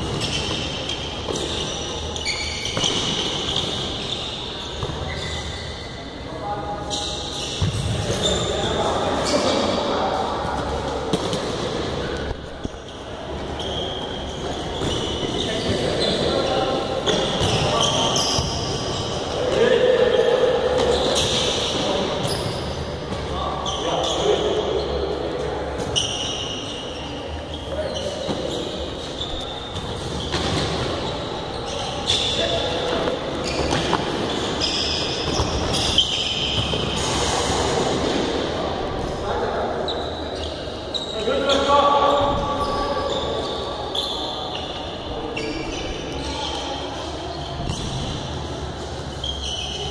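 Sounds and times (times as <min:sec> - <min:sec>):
sneakers squeaking on floor: 0:00.0 - 0:49.9.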